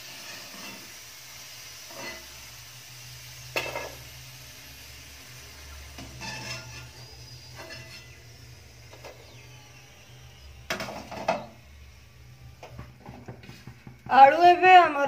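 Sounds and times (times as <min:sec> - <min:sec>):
steel spoon scraping a pan: 0:00.0 - 0:02.5, 0:03.5 - 0:04.1, 0:06.0 - 0:08.2.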